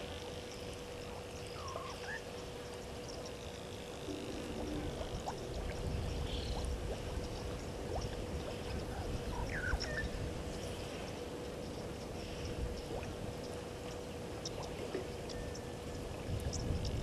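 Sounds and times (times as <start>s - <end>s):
faint steady hum: 0.0s - 17.0s
low rushing noise: 4.0s - 9.0s.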